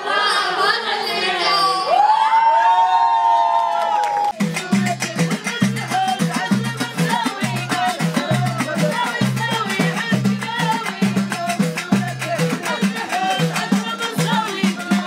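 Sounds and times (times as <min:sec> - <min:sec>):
voices singing: 0:00.0 - 0:02.0, 0:04.3 - 0:15.0
fast percussion beat: 0:04.3 - 0:15.0
metal tray beaten as drum: 0:04.4 - 0:15.0.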